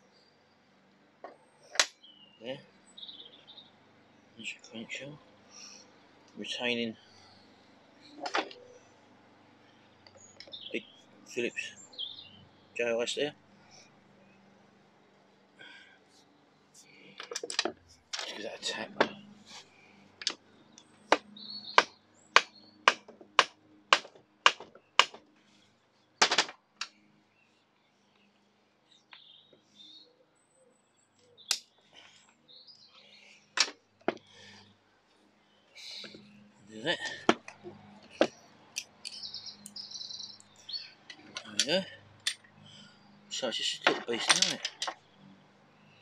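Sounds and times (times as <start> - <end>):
small bird chirping: 1.3 - 8.9, 9.6 - 14.5, 17.8 - 22.9, 26.9 - 33.6, 35.3 - 46.0
metal tools clinking: 43.9 - 45.0.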